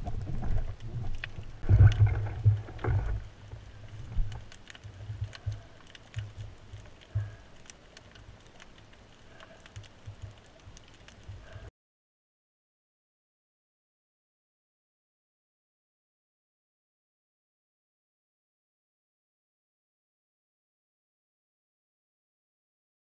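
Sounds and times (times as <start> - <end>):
faint clicks: 0.0 - 11.7
underwater rumbling and sloshing: 0.0 - 11.7.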